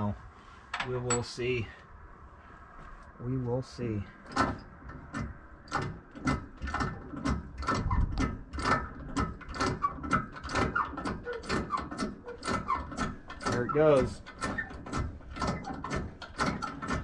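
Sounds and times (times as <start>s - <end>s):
hydraulic hand pump lever clacking: 4.3s - 17.0s.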